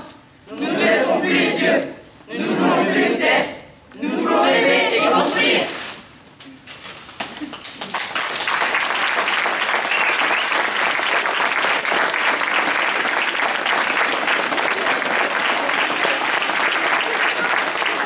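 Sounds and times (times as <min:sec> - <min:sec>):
audience applauding: 0:07.4 - 0:18.0.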